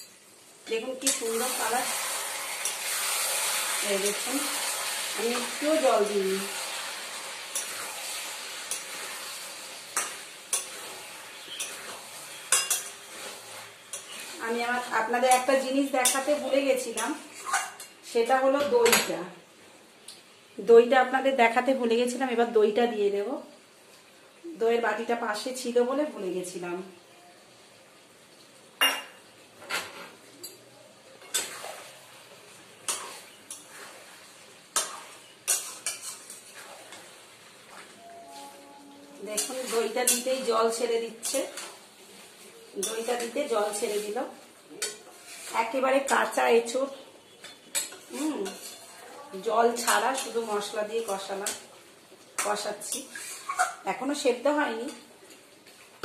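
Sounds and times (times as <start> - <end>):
curry sizzling in oil: 0.0 - 56.0
metal spoon clinking on pan: 1.0 - 1.3, 7.5 - 7.9, 10.0 - 13.3, 15.3 - 17.2, 39.4 - 40.4
spatula scraping a pan: 1.0 - 17.9, 31.2 - 46.4, 47.2 - 51.7, 52.4 - 53.8.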